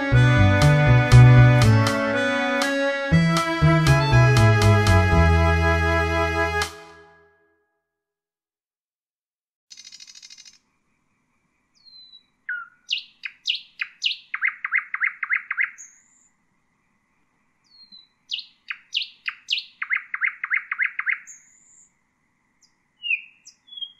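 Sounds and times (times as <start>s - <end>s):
nightingale singing: 11.8s - 16.3s, 17.7s - 21.9s, 22.6s - 23.9s.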